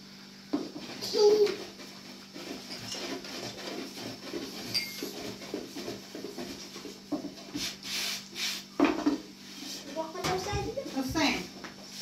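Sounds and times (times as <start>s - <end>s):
rolling pin on wooden board: 0.5s - 12.0s
hands brushing dough: 0.8s - 8.8s.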